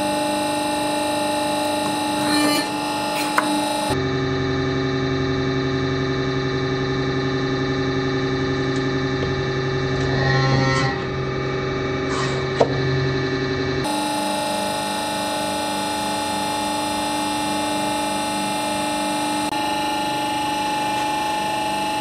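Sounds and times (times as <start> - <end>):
deep drone of hydraulic press: 0.0 - 22.0.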